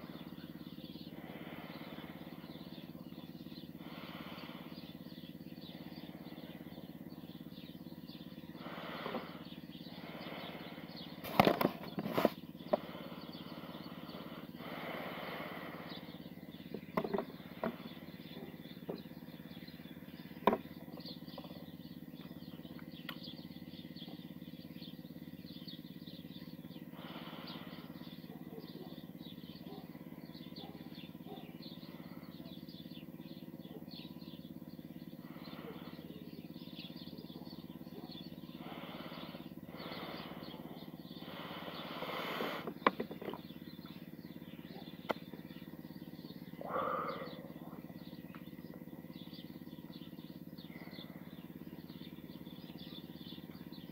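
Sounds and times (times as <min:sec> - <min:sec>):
low motor hum: 0:00.0 - 0:53.9
sharp clicks and rustles: 0:11.2 - 0:12.8.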